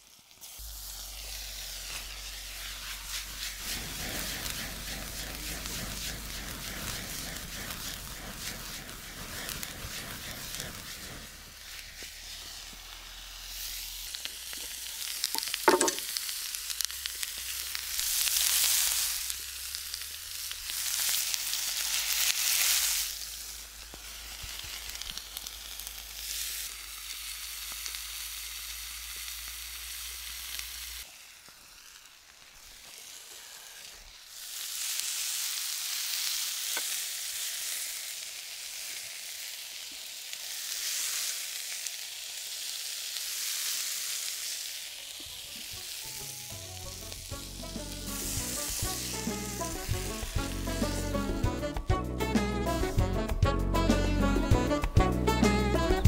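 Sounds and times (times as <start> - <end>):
vegetables sizzling in a frying pan: 0.0 - 51.8
sharp knock: 15.7 - 16.0.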